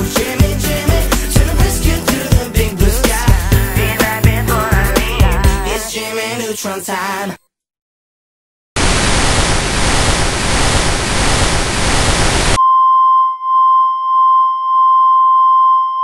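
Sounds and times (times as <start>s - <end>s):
television static hiss: 8.8s - 12.6s.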